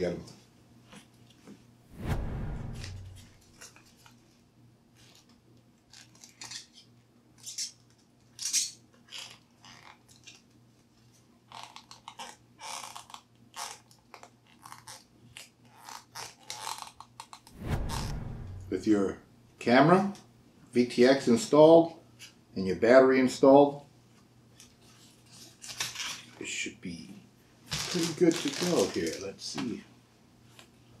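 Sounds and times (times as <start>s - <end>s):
crinkling and rustling of parts: 27.6s - 29.7s.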